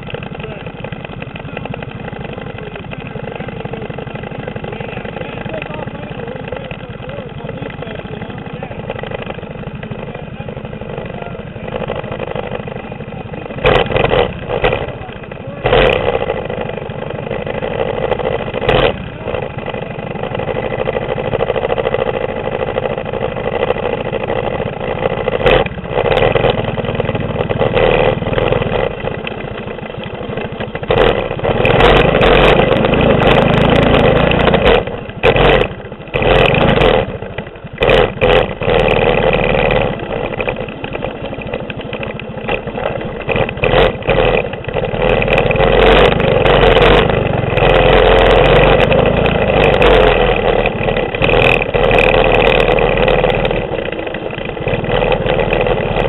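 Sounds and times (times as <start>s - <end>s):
mini bike engine revving: 0.0s - 56.0s.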